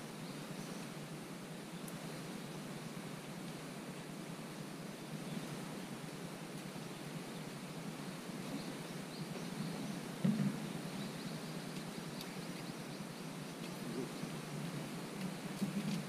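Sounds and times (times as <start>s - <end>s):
faint bird chirps: 8.4s - 16.0s
low thump: 10.2s - 10.7s.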